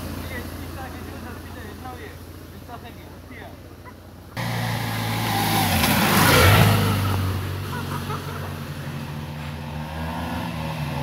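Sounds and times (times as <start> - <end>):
motorcycle passing: 0.0 - 11.0
vehicle engine noise: 0.0 - 11.0
tyres hissing on wet road: 4.4 - 9.6.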